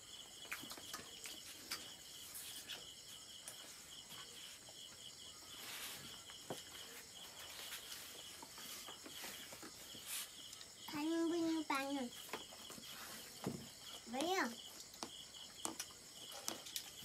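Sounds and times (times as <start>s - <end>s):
crickets chirping: 0.0s - 17.0s
faint clicks and taps: 14.1s - 17.0s.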